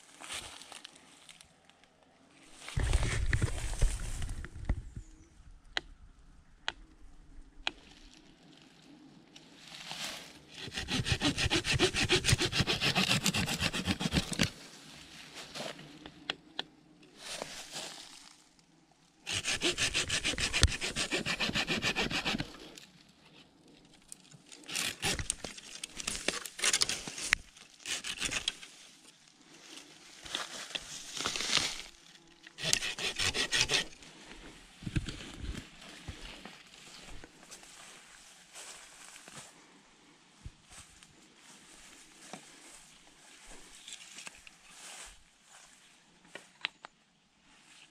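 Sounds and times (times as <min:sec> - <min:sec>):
leaves and twigs rustling: 0:00.0 - 0:05.1, 0:07.6 - 0:12.1, 0:12.8 - 0:16.2, 0:17.1 - 0:18.6, 0:22.2 - 0:39.7, 0:40.6 - 0:46.6
hand saw cutting branch: 0:10.6 - 0:14.6, 0:19.3 - 0:22.8, 0:24.6 - 0:27.1, 0:27.8 - 0:28.6, 0:32.5 - 0:34.0.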